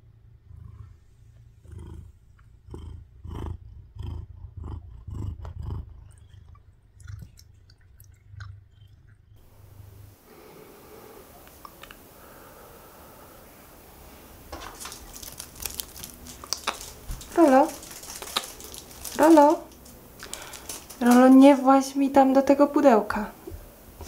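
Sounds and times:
cat purring: 0.0s - 24.0s
small clicks: 11.4s - 12.1s
fur rustling against phone: 13.8s - 21.6s.

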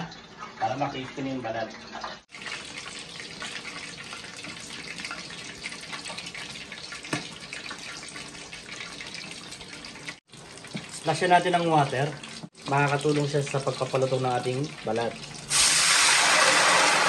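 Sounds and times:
meat sizzling in hot oil: 15.4s - 17.0s.

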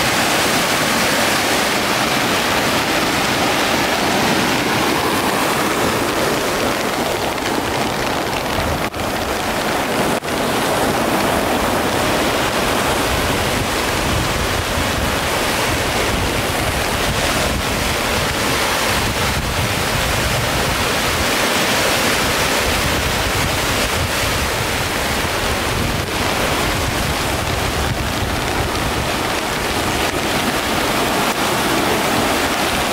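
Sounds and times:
flooded river rushing: 0.0s - 32.9s
wind buffeting microphone: 0.0s - 32.9s.

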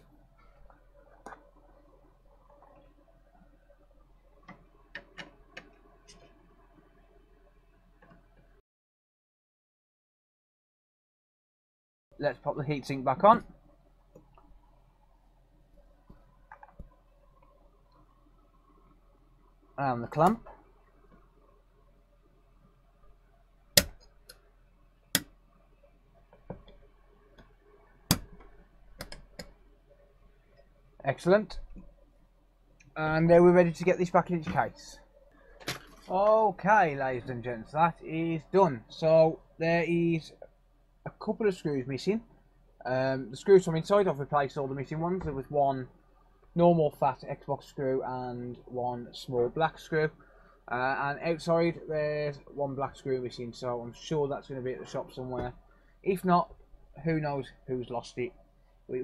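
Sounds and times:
low steady hum: 0.0s - 8.6s, 12.1s - 59.0s.

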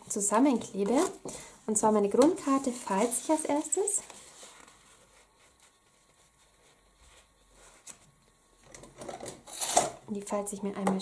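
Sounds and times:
paper rustle: 2.4s - 8.1s.

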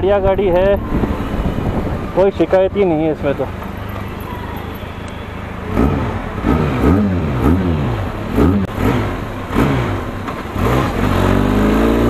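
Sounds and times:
motorcycle engine revving: 4.9s - 12.0s.

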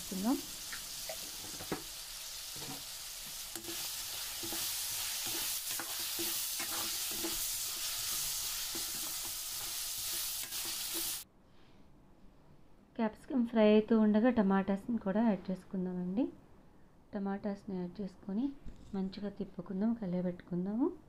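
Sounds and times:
vegetables sizzling in oil: 0.0s - 11.2s
spoon scraping pan: 2.5s - 11.2s.

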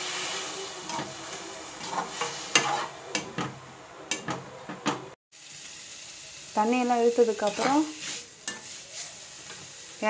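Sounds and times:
beans sizzling in oil: 0.0s - 4.2s, 5.3s - 10.0s
metal spatula scraping pan: 1.8s - 3.5s, 7.2s - 9.7s.

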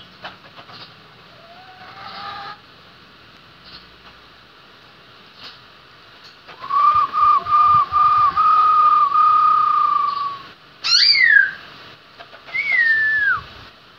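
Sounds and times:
bird singing whistled notes: 6.6s - 11.6s, 12.5s - 13.5s.

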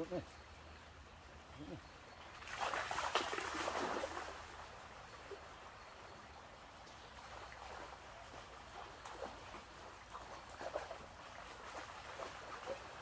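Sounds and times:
stream rushing: 0.5s - 13.0s
faint splashes of dog wading: 2.2s - 13.0s
dog splashing into water: 2.4s - 4.4s.

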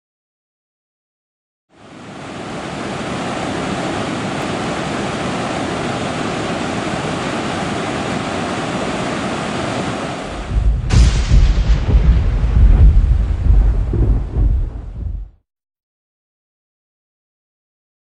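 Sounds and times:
rushing water: 1.7s - 15.3s
deep low rumble: 10.4s - 15.4s.

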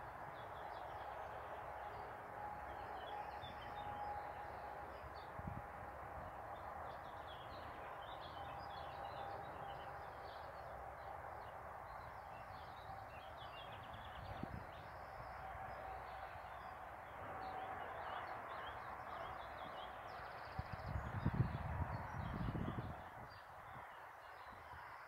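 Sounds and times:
distant road traffic hum: 0.0s - 25.0s.

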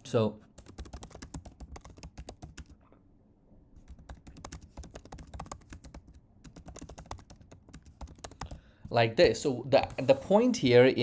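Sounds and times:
computer keyboard typing: 0.6s - 2.8s, 3.8s - 8.6s.

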